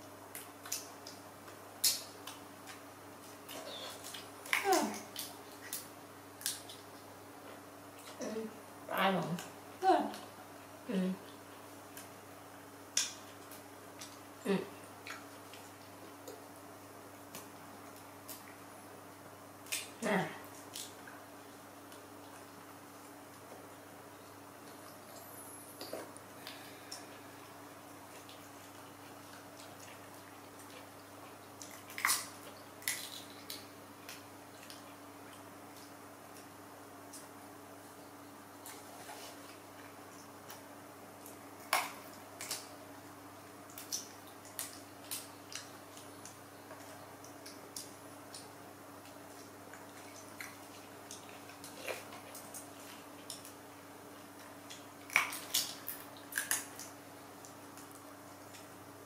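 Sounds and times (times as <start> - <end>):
faint steady hum: 0.0 - 59.0
monkey cracking fruit shells: 31.6 - 34.8, 54.7 - 58.0.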